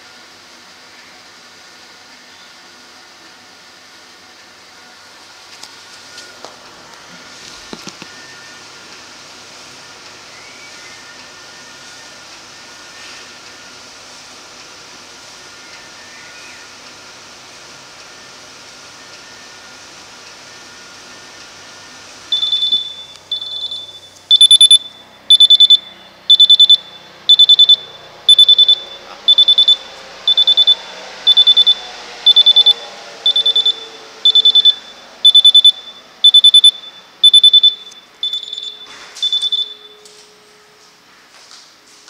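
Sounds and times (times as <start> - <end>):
rapid high alarm beeps: 22.3 - 40.1.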